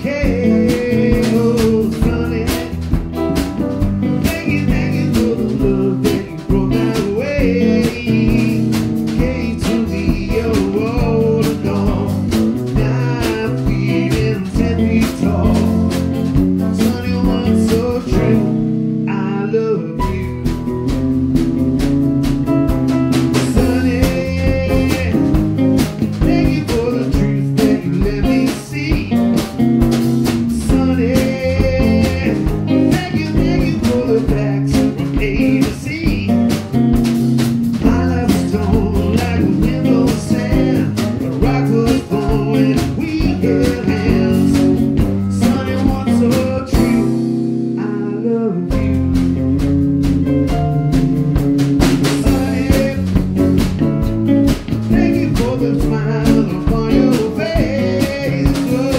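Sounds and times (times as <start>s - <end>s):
man singing: 0.0s - 21.0s, 23.3s - 49.3s, 51.4s - 53.9s, 54.5s - 58.9s
bass guitar: 0.0s - 58.9s
drum kit: 0.0s - 58.9s
electric guitar: 0.0s - 58.9s
piano: 0.0s - 58.9s.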